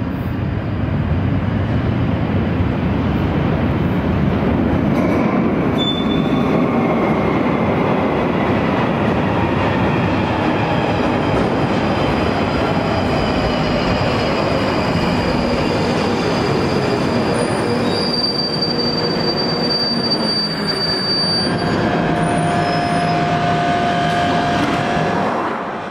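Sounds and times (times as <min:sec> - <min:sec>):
train rumbling into a station: 0:00.0 - 0:25.9
high wheel squeal: 0:05.8 - 0:06.7, 0:13.1 - 0:24.6.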